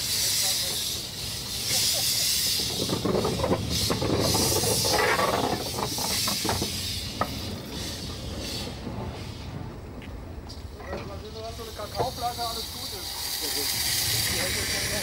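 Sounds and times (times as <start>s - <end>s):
steam locomotive hissing: 0.0s - 15.0s.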